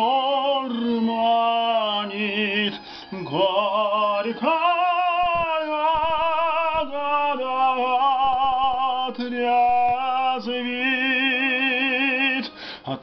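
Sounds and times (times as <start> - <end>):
karaoke backing track: 0.0 - 13.0
person singing with vibrato: 0.0 - 13.0.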